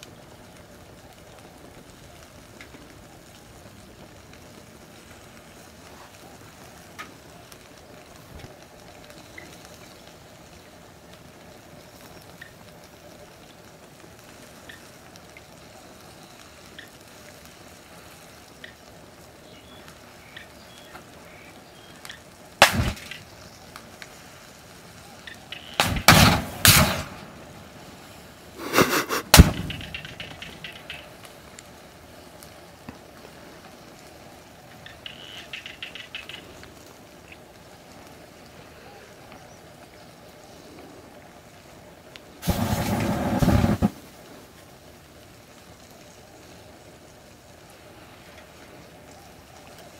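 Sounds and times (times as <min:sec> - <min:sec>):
fire crackling: 0:00.0 - 0:49.9
lighters bursting with sharp bangs: 0:22.1 - 0:31.6, 0:42.4 - 0:44.3.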